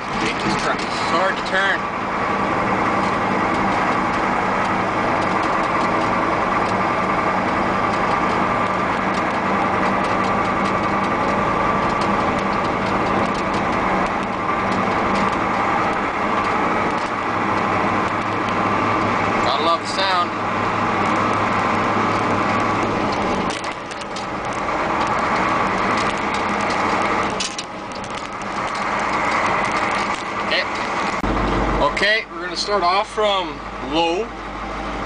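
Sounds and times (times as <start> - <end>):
diesel truck engine running: 0.0 - 35.0
light clicks and rattles: 3.0 - 18.6, 22.1 - 31.2.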